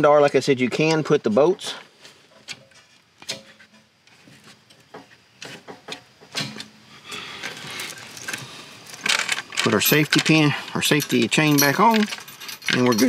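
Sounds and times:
light metal rattle: 2.3s - 13.0s
light metal clicks and clinks: 7.4s - 13.0s.

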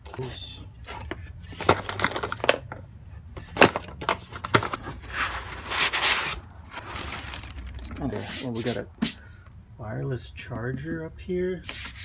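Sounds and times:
cardboard packaging handled: 3.6s - 8.6s
foam packing rustling: 5.0s - 8.8s.

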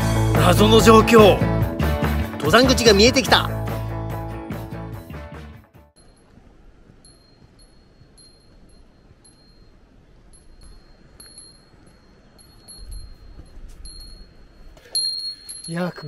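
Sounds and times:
small bell jingling: 6.0s - 16.0s.

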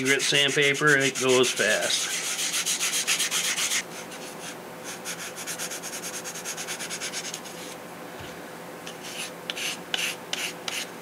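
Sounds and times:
sandpaper rubbing on wood: 0.0s - 7.8s, 9.0s - 10.9s.

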